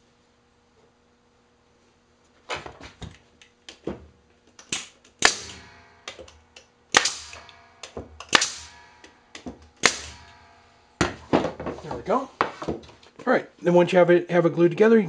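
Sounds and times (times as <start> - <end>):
nail gun shots: 4.6 - 10.6.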